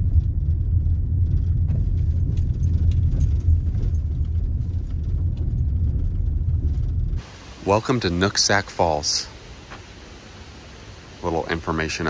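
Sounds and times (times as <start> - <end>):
car driving on bumpy road: 0.0 - 10.3
rattling and jangling: 1.2 - 7.2.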